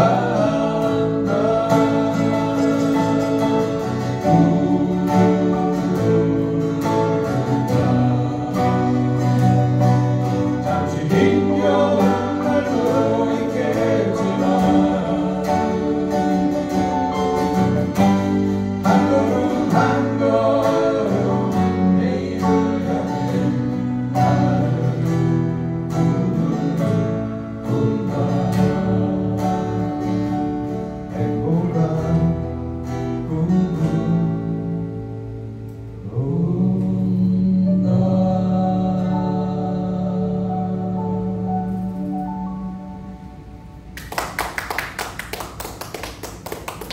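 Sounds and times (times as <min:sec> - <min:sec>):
voices singing: 0:00.0 - 0:30.1
strummed acoustic guitars: 0:00.0 - 0:43.5
electric bass: 0:00.0 - 0:44.0
keyboard: 0:00.0 - 0:44.1.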